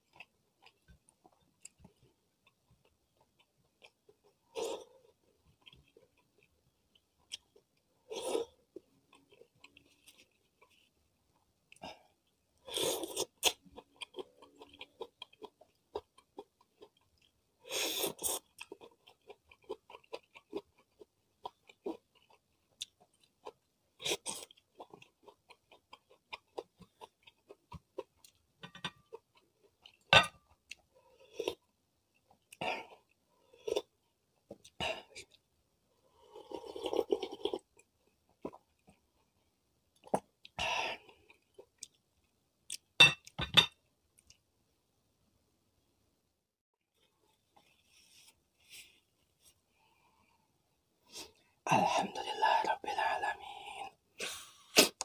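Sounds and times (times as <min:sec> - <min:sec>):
close chewing with crunchy bites: 0:00.0 - 0:35.4.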